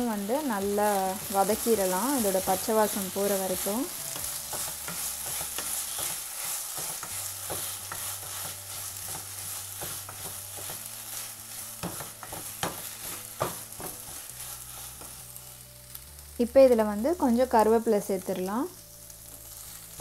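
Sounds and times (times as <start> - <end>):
onions sizzling in oil: 0.0 - 20.0
wooden spatula scraping a pan: 0.8 - 15.9.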